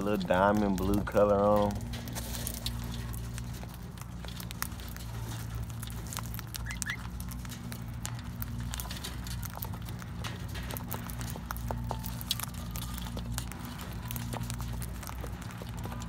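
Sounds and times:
birds cracking seeds: 0.0s - 16.0s
low mechanical hum: 0.0s - 16.0s
bird chirp: 6.6s - 7.0s.

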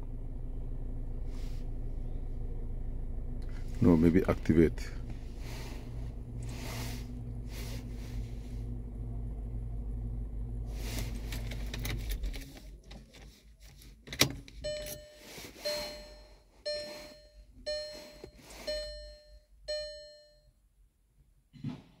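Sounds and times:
steady low hum: 0.0s - 11.9s
car warning chime: 14.6s - 20.6s.

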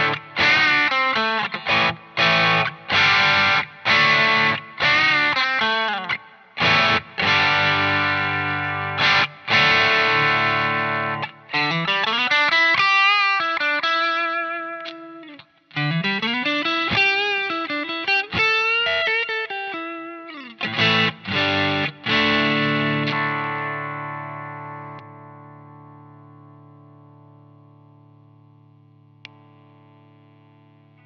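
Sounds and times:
distorted electric guitar: 0.0s - 31.0s.

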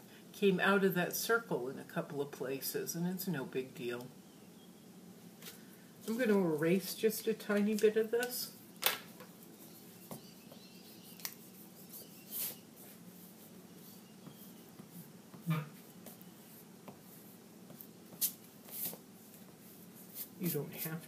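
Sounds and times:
eraser rubbing paper: 9.4s - 15.1s, 15.8s - 21.0s.

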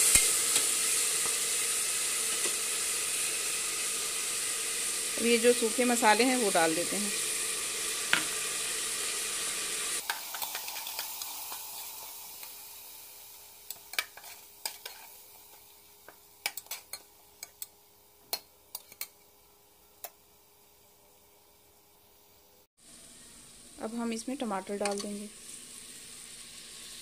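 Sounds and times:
spices sizzling in hot oil: 0.0s - 27.0s
spatula scraping metal pot: 13.9s - 15.1s.

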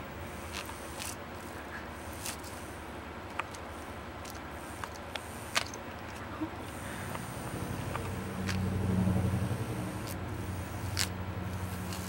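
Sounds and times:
steady low hum: 0.0s - 12.0s
kittens pawing plastic toy clicks: 0.4s - 8.9s, 9.8s - 12.0s.

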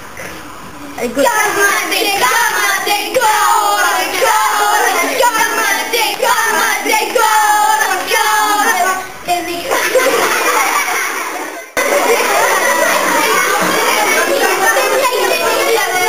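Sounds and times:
children chanting together: 1.2s - 16.0s.

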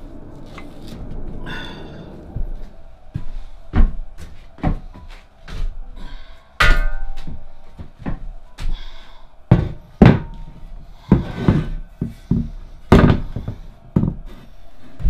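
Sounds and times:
heavy metal base thudding on bench: 6.6s - 7.4s, 9.5s - 12.1s.

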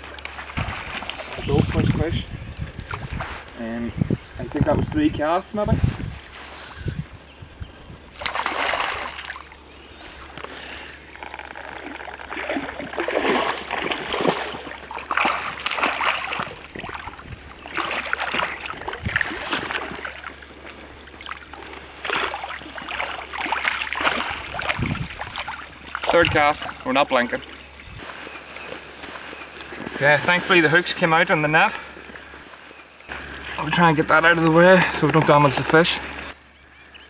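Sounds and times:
fish thrashing and splashing: 0.3s - 2.0s, 8.2s - 9.6s, 11.0s - 30.0s.

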